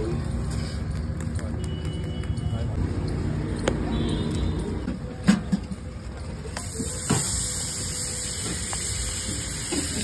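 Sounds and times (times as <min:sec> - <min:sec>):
low rumble of street traffic: 0:00.0 - 0:10.0
butter sizzling on hot pan: 0:06.8 - 0:10.0.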